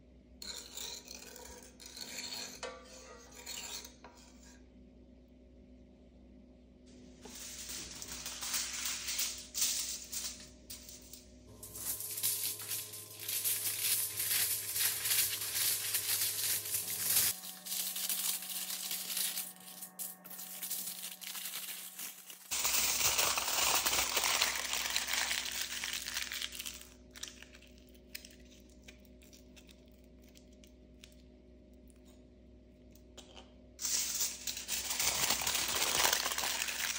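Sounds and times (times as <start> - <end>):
aluminium foil crinkling: 7.2 - 31.2, 33.8 - 36.9
scissors cutting foil: 7.3 - 29.9, 33.8 - 36.9.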